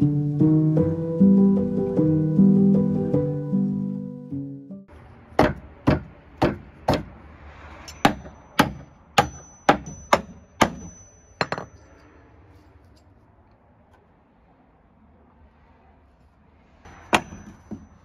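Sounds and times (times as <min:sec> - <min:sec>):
hammer striking wooden boards: 0:05.3 - 0:07.2, 0:08.0 - 0:11.7, 0:16.9 - 0:18.0
thin high ring: 0:07.8 - 0:13.1, 0:16.9 - 0:18.0.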